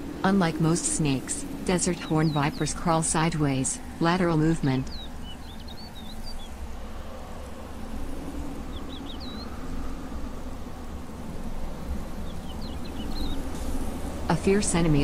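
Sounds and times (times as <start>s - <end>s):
low rumble of wind: 0.0s - 15.0s.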